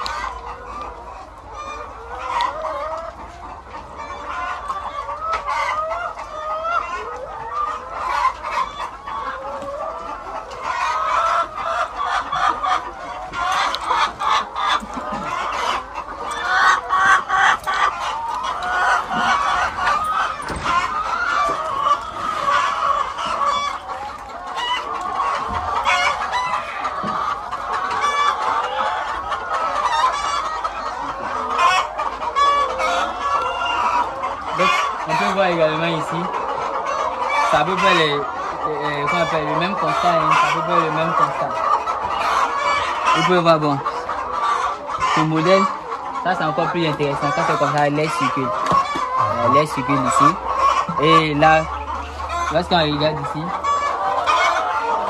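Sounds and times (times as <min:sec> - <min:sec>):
hens clucking: 0:00.0 - 0:55.0.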